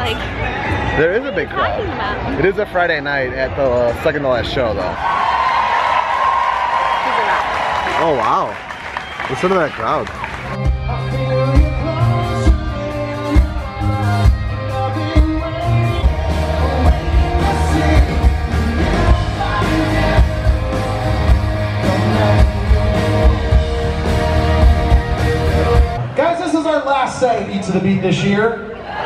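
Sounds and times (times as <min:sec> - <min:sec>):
electric guitar: 0:10.0 - 0:26.2
steady drum beat: 0:10.6 - 0:26.0
man singing: 0:10.9 - 0:25.6.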